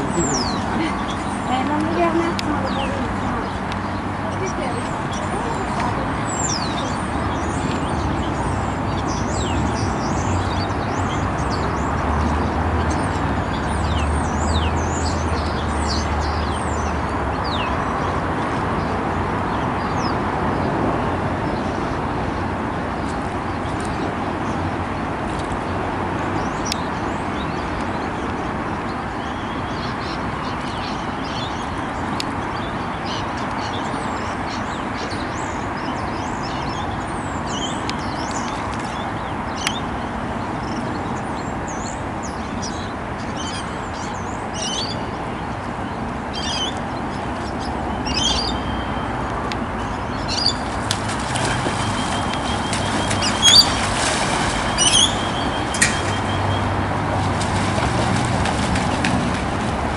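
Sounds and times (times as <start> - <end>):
birds calling: 0.0 - 59.9
pelican splashing and flapping: 50.3 - 59.9.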